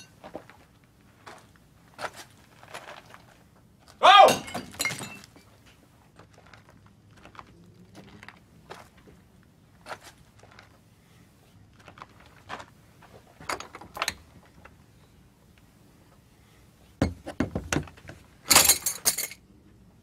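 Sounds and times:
small knocks: 17.0s - 18.2s.

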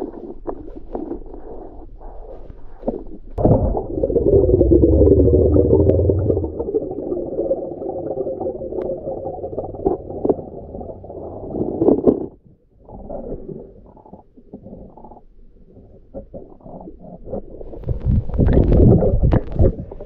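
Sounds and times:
underwater gurgling water: 2.8s - 20.0s
deep rumble: 3.3s - 12.4s
bubbles: 3.4s - 15.2s, 16.2s - 20.0s.

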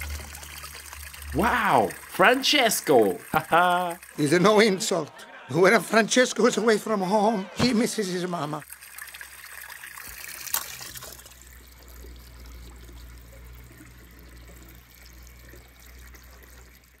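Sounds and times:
low hum: 0.0s - 2.2s
water trickling: 0.0s - 5.2s, 8.4s - 17.0s.

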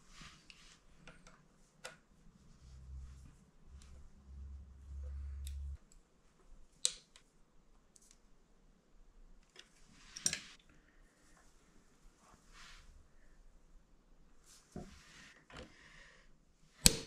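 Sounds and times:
low hum: 2.4s - 5.8s.

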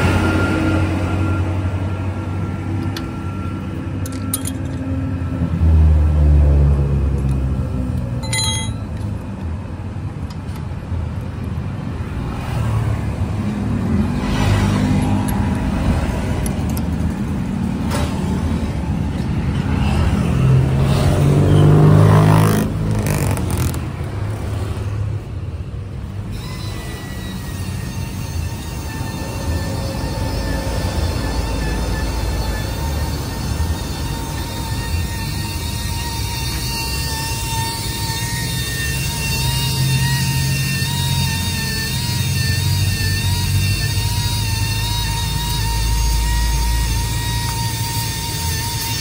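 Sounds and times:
vehicle engines passing: 0.0s - 49.0s
metallic clink: 4.0s - 4.9s, 8.2s - 9.1s.

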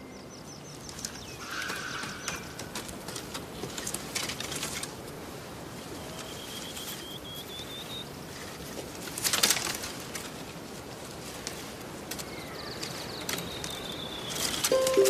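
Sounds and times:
rustling in vegetation: 2.6s - 15.0s
high chirping notes: 14.7s - 15.0s.

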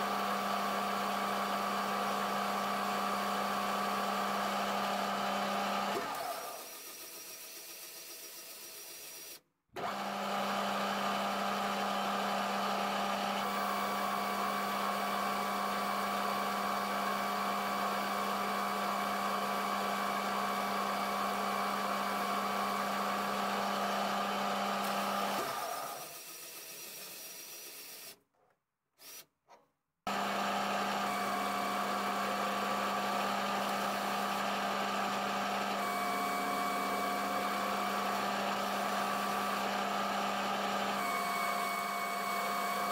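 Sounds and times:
metal lathe humming: 30.1s - 42.9s
motor and gear whine: 30.1s - 42.9s.

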